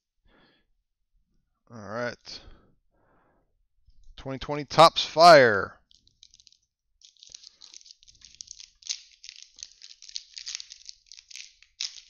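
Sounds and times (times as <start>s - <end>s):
foil wrapper crinkling and tearing: 5.9s - 12.0s.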